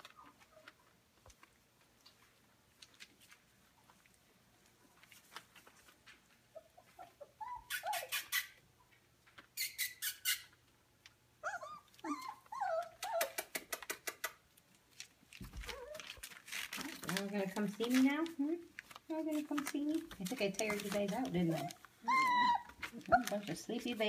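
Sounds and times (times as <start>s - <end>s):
puppies yipping and whimpering: 6.5s - 8.6s, 11.4s - 13.6s, 21.6s - 23.4s.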